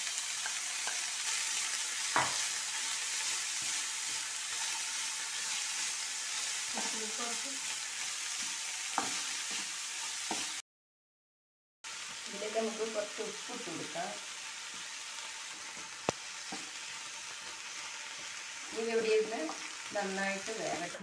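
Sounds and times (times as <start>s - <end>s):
vegetables sizzling in oil: 0.0s - 10.6s, 11.9s - 21.0s
metal spoon stirring in pan: 0.2s - 10.6s
spoon knocking against pan: 2.1s - 2.4s.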